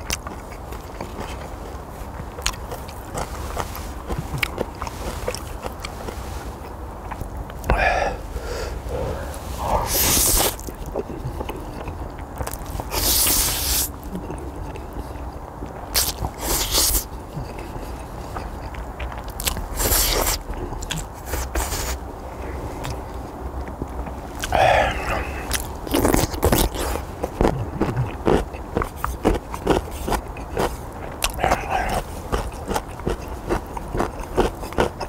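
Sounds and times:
chewing with small clicks: 0:00.0 - 0:07.8, 0:10.4 - 0:21.8, 0:22.4 - 0:35.0
slurping noodles: 0:08.6 - 0:10.7.

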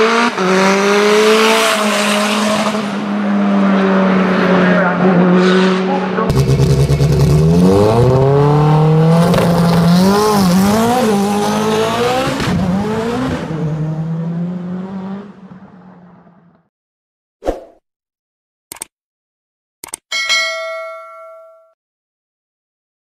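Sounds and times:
car engine accelerating hard: 0:00.0 - 0:16.6.

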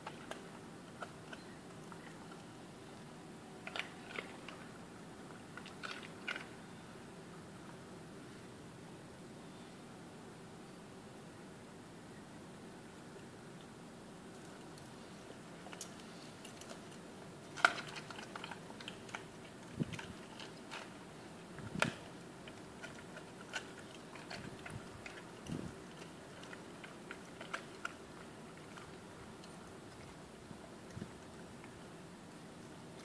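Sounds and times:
dog chewing bones: 0:16.5 - 0:31.8.

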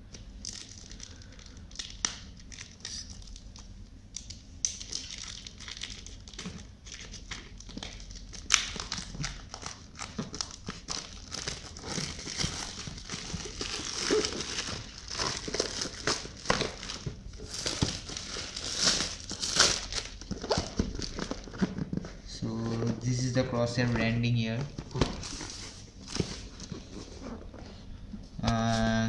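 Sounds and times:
plastic shrink-wrap crinkling: 0:00.4 - 0:21.8, 0:24.6 - 0:27.2.

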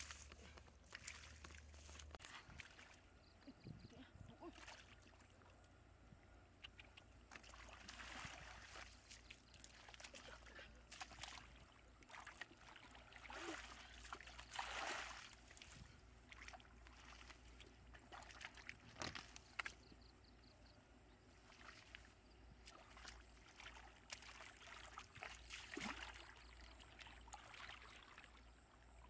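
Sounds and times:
hands splashing in muddy water: 0:00.0 - 0:03.0, 0:07.2 - 0:20.0, 0:21.4 - 0:28.4.

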